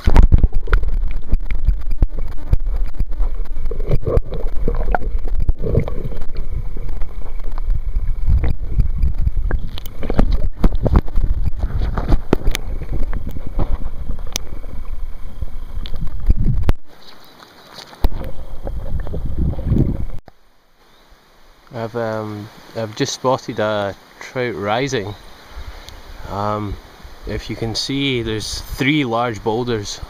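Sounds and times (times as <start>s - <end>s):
sharp underwater clicks and knocks: 0.0s - 20.2s
underwater river rumble: 0.0s - 22.8s.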